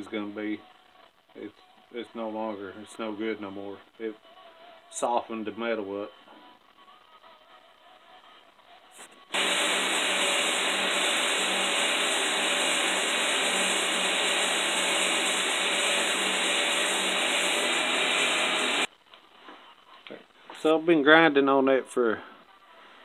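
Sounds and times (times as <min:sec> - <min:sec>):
belt grinder grinding blade: 0:09.3 - 0:18.9.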